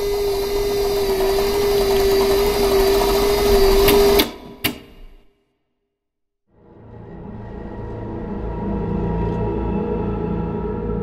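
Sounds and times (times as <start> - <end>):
mechanical whirring: 0.0 - 5.2.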